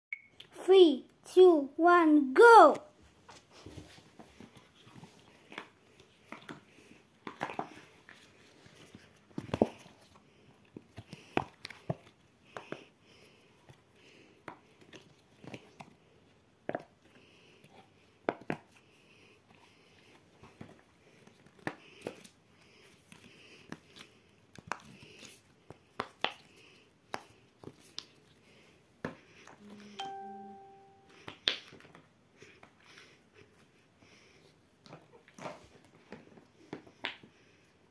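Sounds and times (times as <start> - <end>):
brief steady tone: 29.6 - 31.2.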